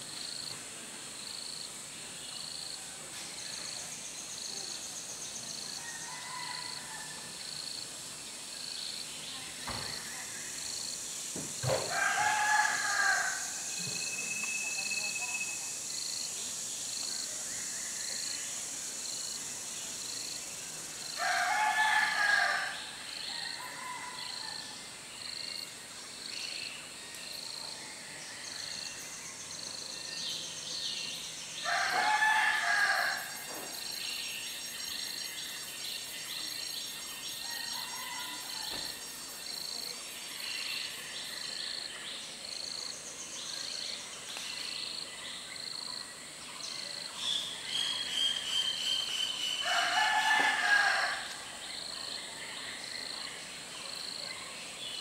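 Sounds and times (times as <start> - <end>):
insect chorus: 0.0 - 55.0
rooster crowing: 5.8 - 7.3, 11.9 - 14.1, 21.2 - 22.8, 31.6 - 33.4, 37.4 - 39.0, 49.6 - 51.5.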